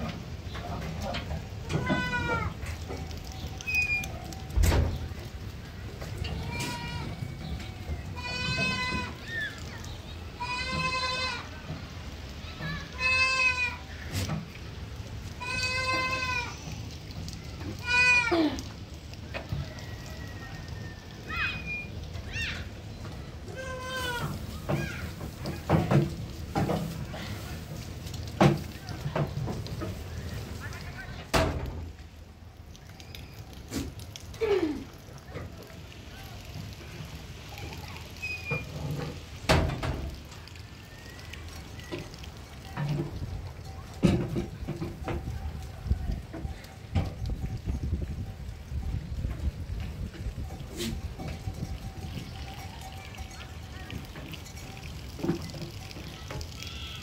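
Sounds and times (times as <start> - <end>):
goats shuffling at metal feed rail: 0.0 - 12.0, 22.6 - 31.9, 41.4 - 48.1, 49.2 - 56.2
goats bleating: 1.6 - 2.6, 6.4 - 7.3, 8.0 - 9.6, 10.4 - 11.5, 12.8 - 13.9, 15.4 - 16.8, 17.8 - 18.7, 23.5 - 24.4.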